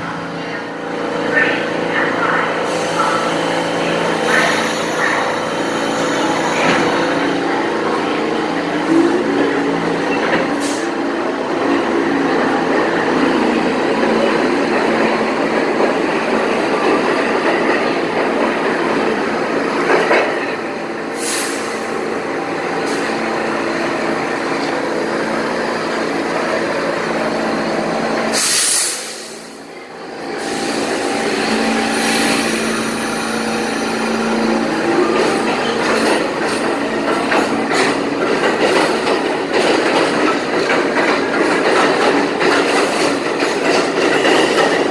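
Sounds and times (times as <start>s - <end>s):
subway train rumbling: 0.0s - 44.9s
train wheel clatter: 35.0s - 44.9s.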